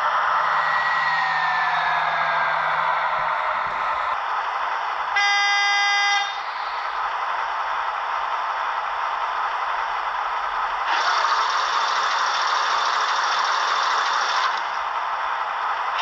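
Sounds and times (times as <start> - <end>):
model locomotive running: 4.3 - 16.0
model train horn from small speaker: 5.2 - 6.4.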